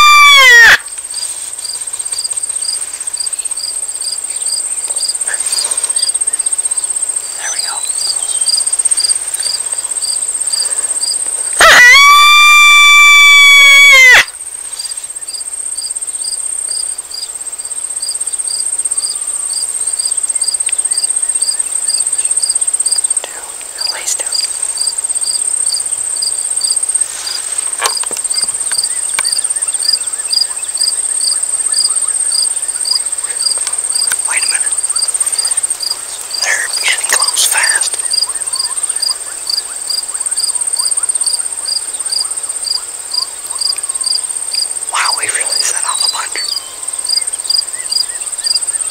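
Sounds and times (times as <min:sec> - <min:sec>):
coyote call howl: 0:00.0 - 0:00.9, 0:11.6 - 0:14.3
insects trilling: 0:00.0 - 0:48.9
insect pulsing: 0:20.4 - 0:41.8, 0:44.8 - 0:48.0.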